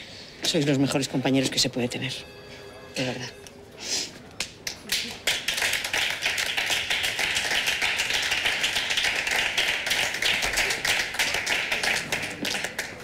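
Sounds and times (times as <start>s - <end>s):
small group clapping: 4.4s - 13.0s.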